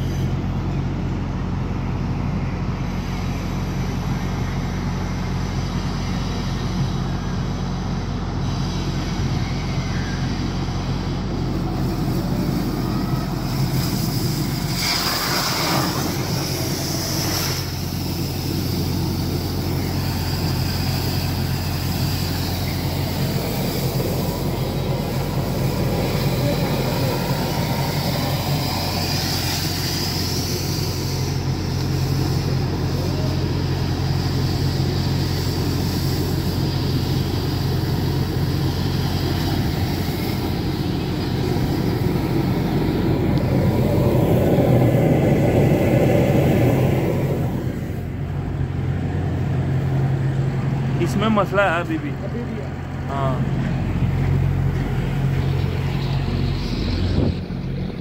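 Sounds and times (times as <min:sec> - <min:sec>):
truck engine running: 0:00.0 - 0:58.0
water spraying hiss: 0:11.4 - 0:48.4.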